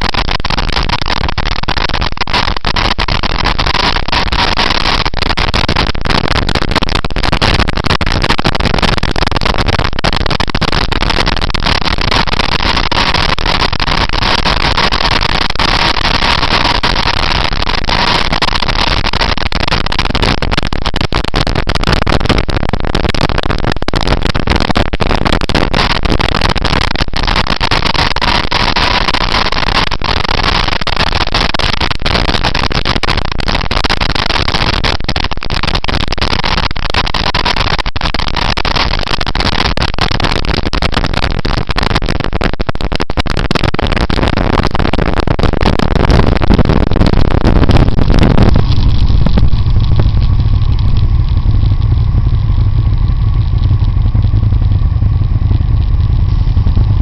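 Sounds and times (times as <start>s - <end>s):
faint steady whine: 0.0s - 57.0s
wind rush on microphone: 0.0s - 57.0s
motorcycle engine running: 48.5s - 57.0s.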